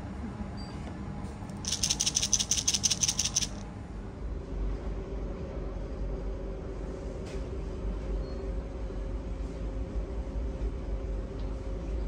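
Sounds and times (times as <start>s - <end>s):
coins clattering from dispenser: 1.6s - 3.6s.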